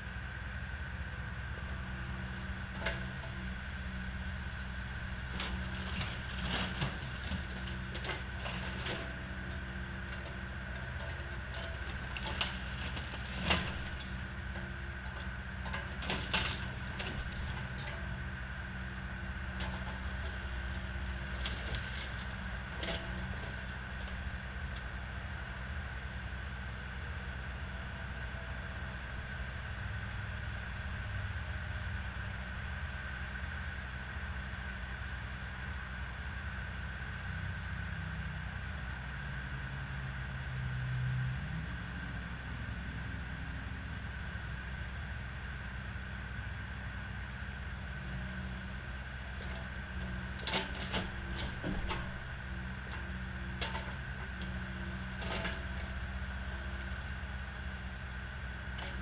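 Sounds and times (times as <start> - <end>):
excavator engine running: 0.0 - 37.7, 41.4 - 59.0
wood splintering and cracking: 5.2 - 9.1, 11.6 - 14.2, 15.9 - 17.8.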